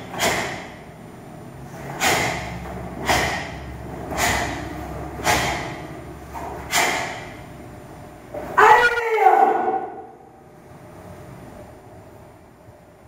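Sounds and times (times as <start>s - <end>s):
forceful exhale: 0.0s - 0.8s, 1.7s - 5.9s, 6.6s - 7.4s
sharp swishing of strikes: 0.0s - 0.8s, 1.8s - 5.9s, 6.6s - 7.4s.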